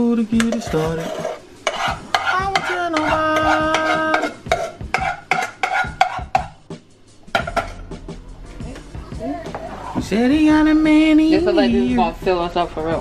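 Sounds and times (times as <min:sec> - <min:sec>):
song playing: 0:00.0 - 0:13.0
utensil stirring in a pot: 0:00.3 - 0:06.6
sharp knocks and scrapes: 0:00.5 - 0:03.2, 0:03.8 - 0:06.5.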